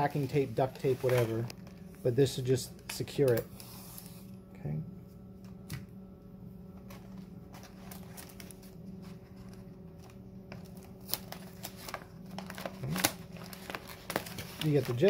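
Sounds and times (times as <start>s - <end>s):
padded paper envelope crinkling: 0.0s - 1.9s, 6.9s - 15.0s
steady low hum: 0.0s - 15.0s.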